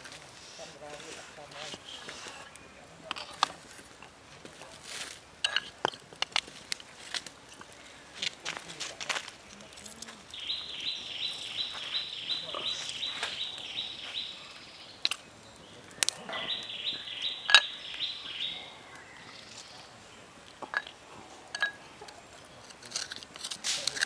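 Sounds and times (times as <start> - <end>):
bird chirping: 9.6 - 22.8.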